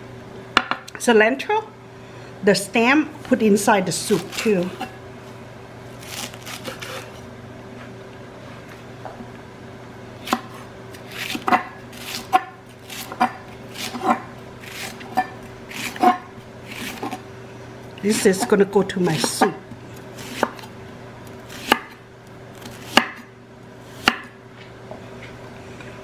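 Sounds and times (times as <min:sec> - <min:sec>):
knife chopping on wooden board: 0:10.3 - 0:10.6, 0:11.2 - 0:17.2, 0:20.2 - 0:20.7, 0:21.5 - 0:22.0, 0:22.8 - 0:23.3, 0:24.0 - 0:24.4.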